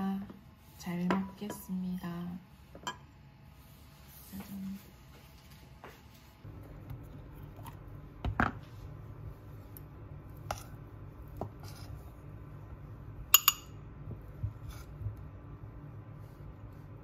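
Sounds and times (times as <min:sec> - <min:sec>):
low steady hum: 0:00.0 - 0:17.0
spatula scraping a metal pot: 0:11.6 - 0:12.0.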